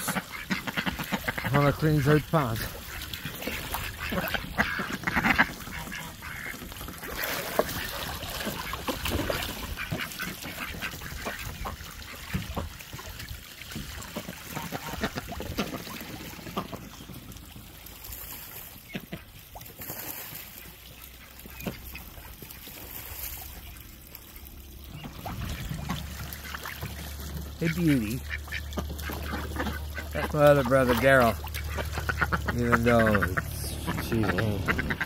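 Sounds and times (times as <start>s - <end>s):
geese honking: 0.0s - 12.2s, 21.0s - 35.0s
ducks quacking: 0.0s - 13.2s, 13.9s - 17.3s, 18.3s - 19.5s, 20.1s - 35.0s.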